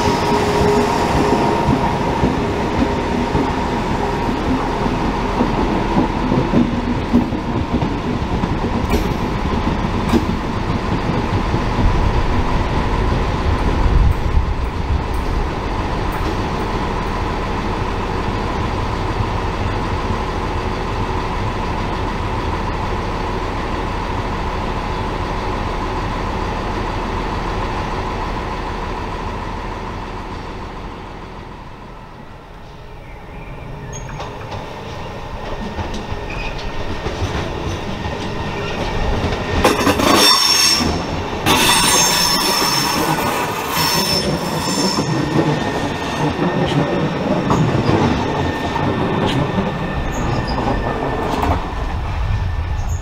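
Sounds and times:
electric train humming: 0:00.0 - 0:53.0
train rumbling past: 0:00.0 - 0:53.0
train wheels squealing: 0:32.7 - 0:35.2, 0:36.2 - 0:36.8, 0:37.7 - 0:51.6.

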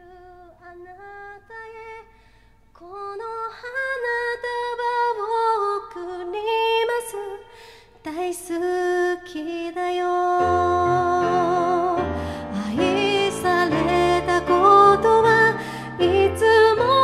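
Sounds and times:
woman singing a slow ballad: 0:00.0 - 0:02.2, 0:02.8 - 0:17.0
grand piano chords: 0:10.4 - 0:17.0.

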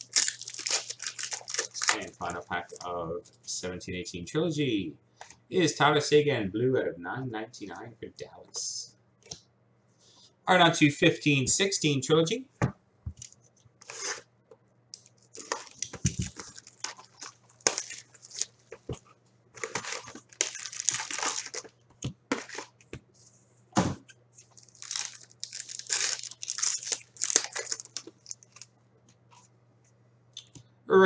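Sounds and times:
wrapper tearing and crinkling: 0:00.0 - 0:02.9, 0:15.1 - 0:18.9, 0:19.6 - 0:22.8, 0:24.4 - 0:28.7.

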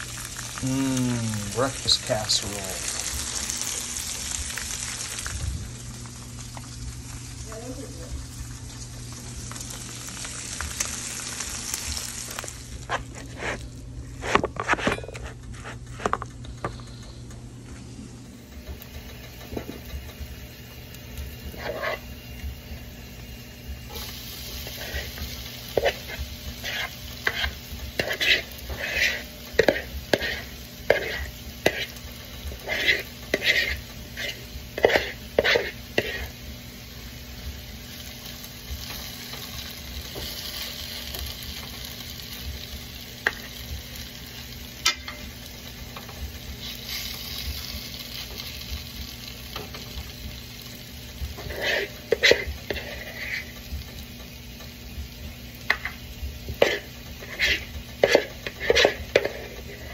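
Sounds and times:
food sizzling in skillet: 0:00.0 - 0:15.8, 0:17.8 - 0:59.9
utensil scraping mixing bowl: 0:21.5 - 0:22.0, 0:24.6 - 0:36.4, 0:51.4 - 0:53.5, 0:56.6 - 0:59.9.

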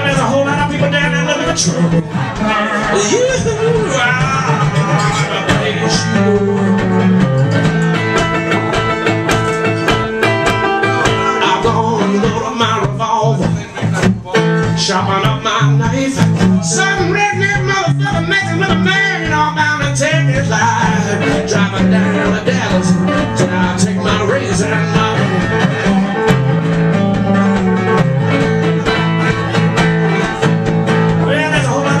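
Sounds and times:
man singing: 0:00.0 - 0:08.1, 0:09.6 - 0:30.4, 0:31.1 - 0:32.0
acoustic guitar: 0:00.0 - 0:32.0.

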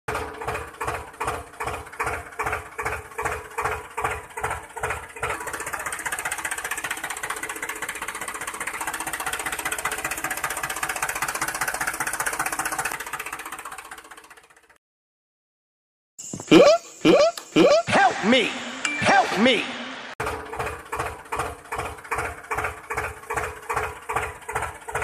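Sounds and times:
toy tractor engine chugging: 0:00.1 - 0:14.8, 0:20.2 - 0:25.0.

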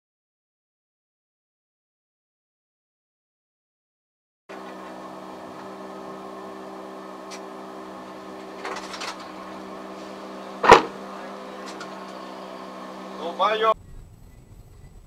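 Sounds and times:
car cabin hum: 0:04.5 - 0:15.0
short rough noise: 0:07.3 - 0:15.0
loud impact bang: 0:10.6 - 0:11.1.

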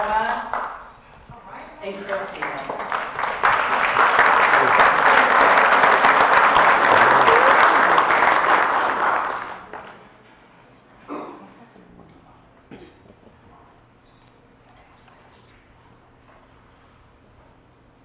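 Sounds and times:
crowd applauding: 0:00.0 - 0:01.0, 0:01.9 - 0:10.2.

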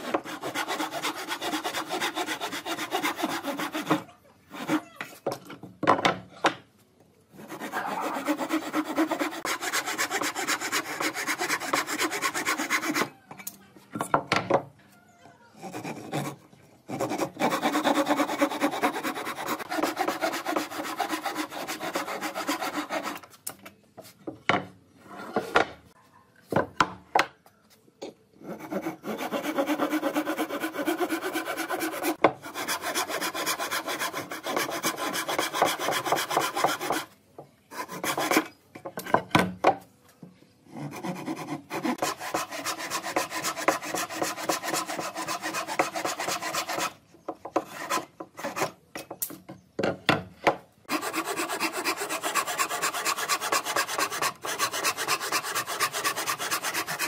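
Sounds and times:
hand saw cutting wood: 0:00.0 - 0:04.8, 0:07.4 - 0:13.1, 0:15.6 - 0:23.3, 0:28.5 - 0:38.5, 0:40.8 - 0:48.8, 0:50.9 - 0:57.0.

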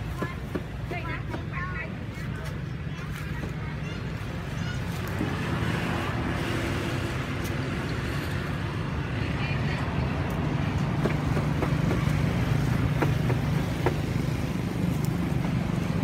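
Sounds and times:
vehicle engine rumble: 0:00.0 - 0:16.0.

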